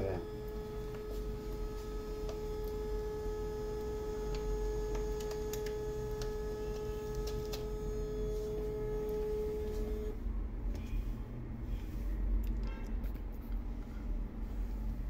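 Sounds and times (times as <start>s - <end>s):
scanner motor whine: 0.0s - 10.2s.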